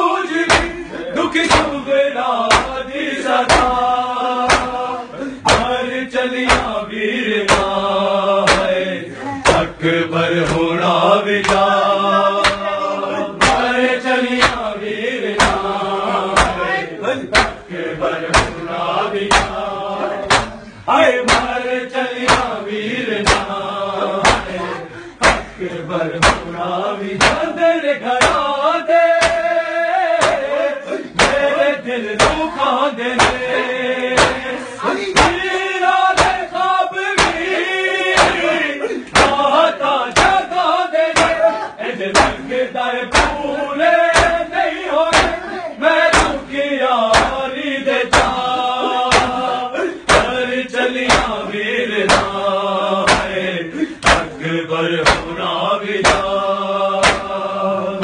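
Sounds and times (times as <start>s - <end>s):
men chanting in unison: 0.0s - 58.0s
hands striking chests: 4.5s - 4.8s, 5.5s - 5.8s, 8.5s - 8.8s, 11.4s - 11.7s, 13.4s - 13.7s, 14.4s - 14.7s, 16.4s - 17.7s, 18.3s - 18.6s, 19.3s - 19.6s, 20.2s - 20.6s, 22.3s - 22.6s, 23.2s - 23.5s, 24.2s - 24.6s, 25.2s - 25.5s, 26.2s - 26.5s, 27.2s - 27.5s, 29.2s - 29.5s, 30.2s - 30.5s, 31.2s - 31.5s, 34.1s - 34.5s, 36.1s - 36.5s, 37.1s - 38.5s, 39.1s - 39.4s, 40.1s - 40.4s, 44.1s - 44.4s, 45.1s - 45.4s, 46.1s - 46.4s, 49.1s - 49.5s, 51.1s - 51.4s, 53.1s - 53.4s, 54.0s - 54.3s, 55.0s - 55.3s, 57.0s - 57.4s.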